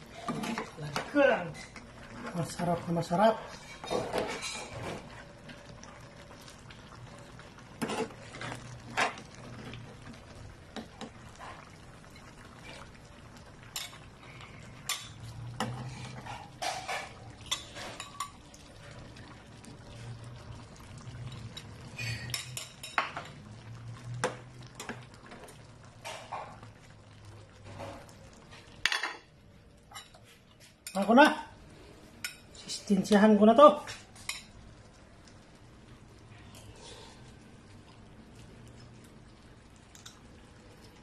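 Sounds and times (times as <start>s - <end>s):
metal ladle scraping a pan: 7.8s - 9.3s, 14.8s - 18.4s, 21.9s - 23.0s.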